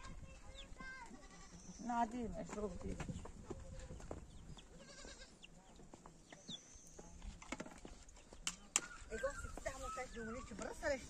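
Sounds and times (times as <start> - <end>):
goat bleating: 0.8 - 1.7, 4.8 - 5.4.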